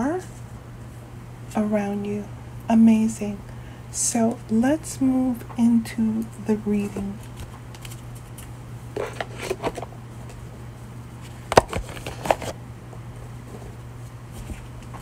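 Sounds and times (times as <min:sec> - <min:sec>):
steady low hum: 0:00.0 - 0:15.0
cards rustling and clicking: 0:07.1 - 0:10.4, 0:11.3 - 0:12.6.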